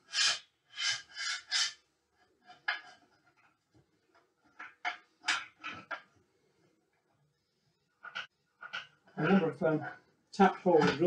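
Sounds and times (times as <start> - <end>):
tripod rubbing and scraping: 0.0 - 3.5.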